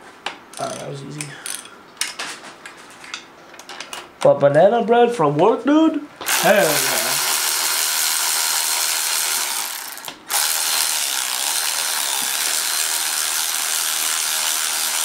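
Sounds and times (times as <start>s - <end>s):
electric ratchet running: 6.2s - 15.0s.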